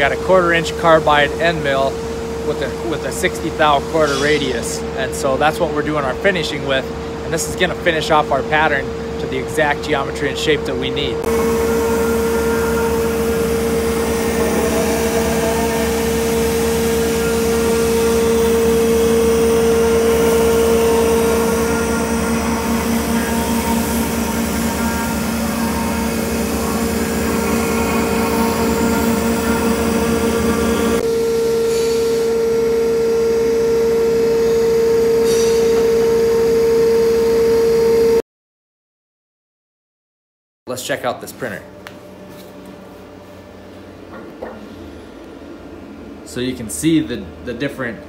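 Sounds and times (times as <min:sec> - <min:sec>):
machine hum: 0:00.0 - 0:38.2, 0:40.7 - 0:48.0
milling spindle whining: 0:11.2 - 0:31.0.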